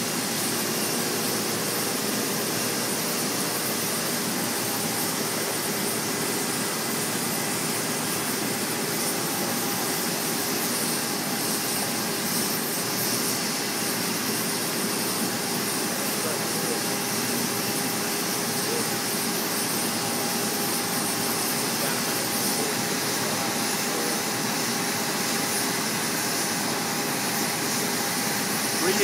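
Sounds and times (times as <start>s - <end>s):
cutting torch hissing: 0.0s - 29.0s.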